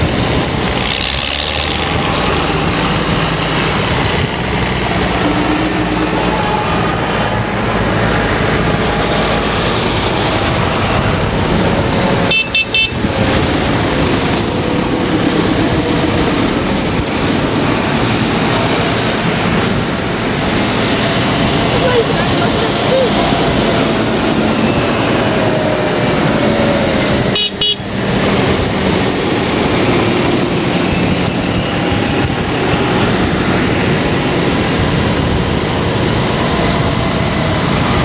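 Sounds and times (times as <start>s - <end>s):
tractors rumbling past: 0.0s - 38.0s
horn tooting: 12.2s - 13.1s, 27.3s - 28.0s.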